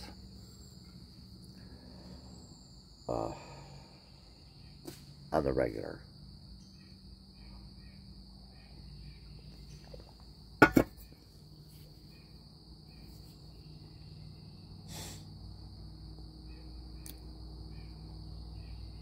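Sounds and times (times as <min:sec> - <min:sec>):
crickets chirping: 0:00.0 - 0:19.0
faint outdoor background noise: 0:00.0 - 0:19.0
soft rustle: 0:11.6 - 0:12.2.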